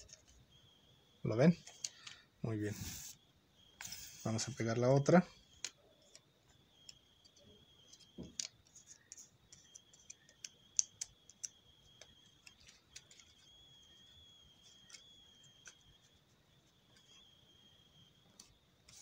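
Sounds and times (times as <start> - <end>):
faint high-pitched whine: 0.0 - 19.0
paper clicks and taps: 7.9 - 13.5.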